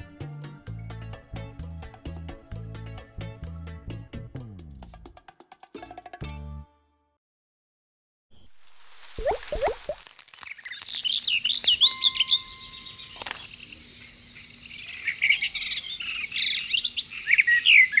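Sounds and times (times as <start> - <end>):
water drop plop: 9.2 - 10.0
birds chirping: 10.8 - 18.0
soft chime tone: 11.8 - 13.3.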